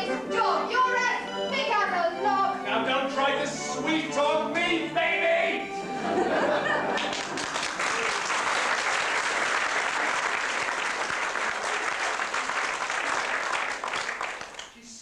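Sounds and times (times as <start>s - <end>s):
audience applauding: 6.6s - 14.8s.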